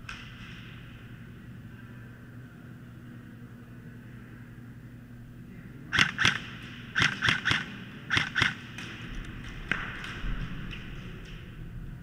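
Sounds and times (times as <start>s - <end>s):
airsoft rifle shots: 5.9s - 9.1s.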